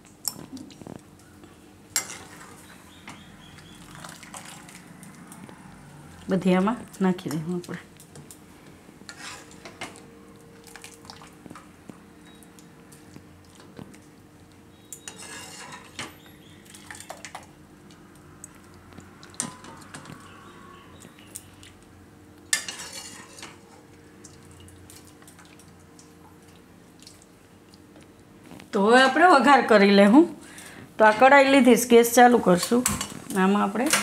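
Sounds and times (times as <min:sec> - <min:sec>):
faint steady hum: 0:00.0 - 0:34.0
water splashing and dripping: 0:03.5 - 0:05.5, 0:10.6 - 0:11.6, 0:24.2 - 0:27.9.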